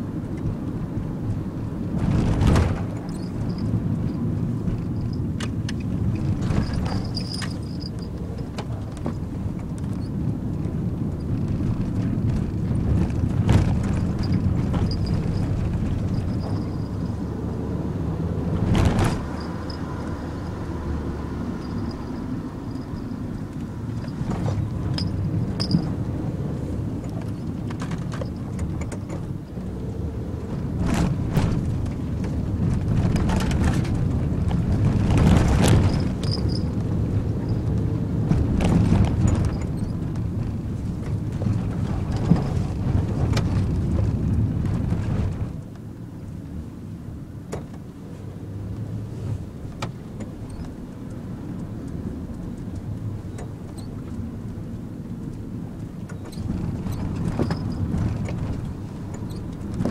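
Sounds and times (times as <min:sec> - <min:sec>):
engine and tyre rumble: 0:00.0 - 0:59.9
knocks and rattles: 0:01.9 - 0:17.2, 0:18.4 - 0:20.6, 0:21.6 - 0:29.4, 0:30.6 - 0:45.6, 0:56.1 - 0:59.9.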